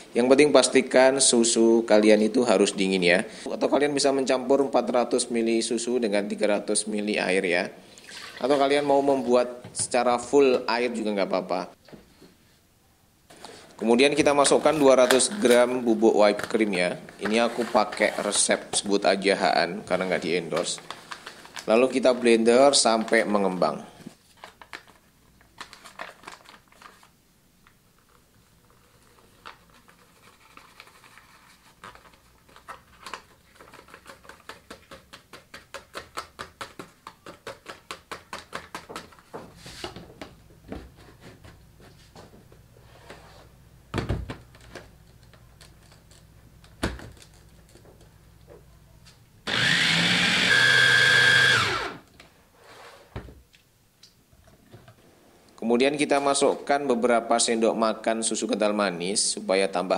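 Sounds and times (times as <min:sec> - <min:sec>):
electric blender running: 0:49.5 - 0:52.1.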